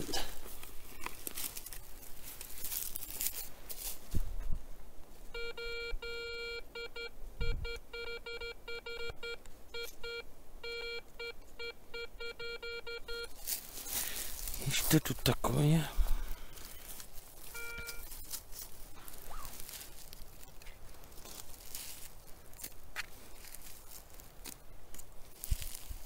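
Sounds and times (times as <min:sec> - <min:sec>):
rustling: 0:00.0 - 0:05.4, 0:13.1 - 0:26.0
metal detector beeping: 0:05.3 - 0:13.4, 0:16.6 - 0:18.3.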